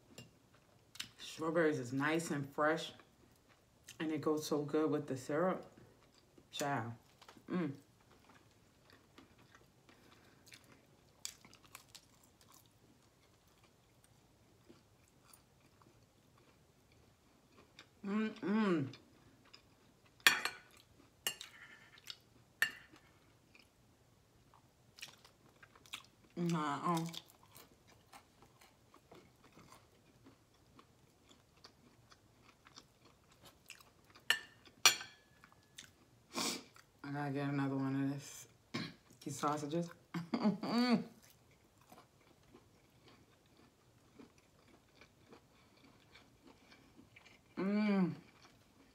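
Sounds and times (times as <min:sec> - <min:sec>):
chewing bacon: 0:05.5 - 0:23.8, 0:24.4 - 0:37.0, 0:41.1 - 0:48.9.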